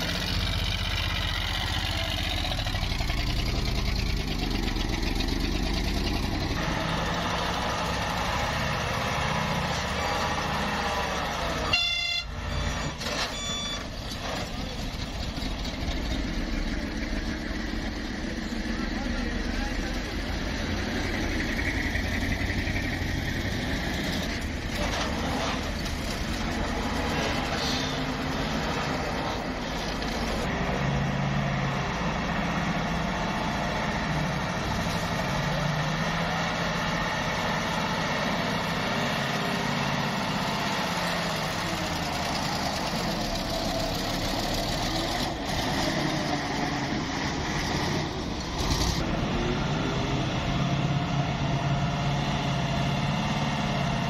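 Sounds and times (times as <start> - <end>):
diesel truck engines droning: 0.0 - 54.0.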